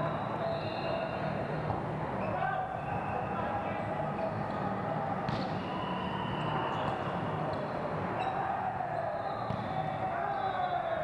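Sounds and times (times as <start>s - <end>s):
echoing sports hall din: 0.0s - 11.0s
balls being struck: 5.3s - 5.6s.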